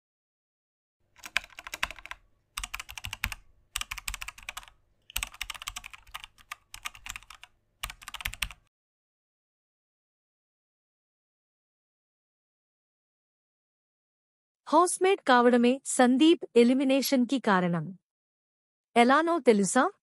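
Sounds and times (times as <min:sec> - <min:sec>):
keyboard key clicks: 0:01.2 - 0:08.6.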